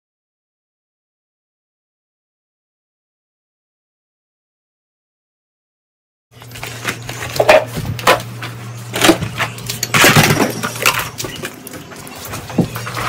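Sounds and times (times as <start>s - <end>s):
low hum: 6.4s - 13.0s
plastic toys clattering: 6.4s - 13.0s.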